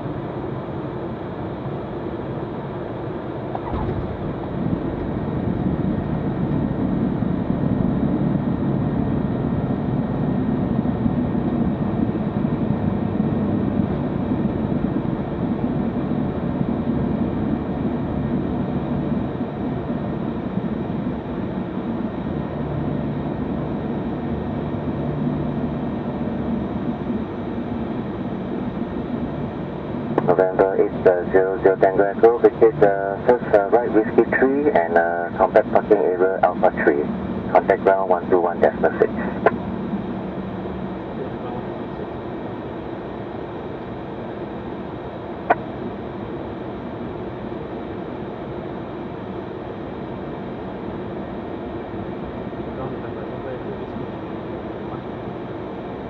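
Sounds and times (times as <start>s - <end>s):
jet cockpit rumble: 0.0s - 56.0s.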